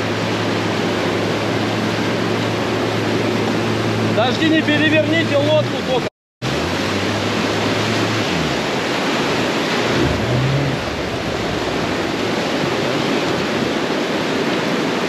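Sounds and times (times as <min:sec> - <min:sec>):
low motor hum: 0:00.0 - 0:13.1
river water rushing over rocks: 0:00.0 - 0:15.0.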